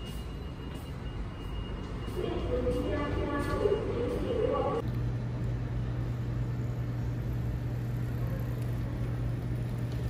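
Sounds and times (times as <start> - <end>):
city background noise: 0.0 - 10.0
low hum: 3.0 - 10.0.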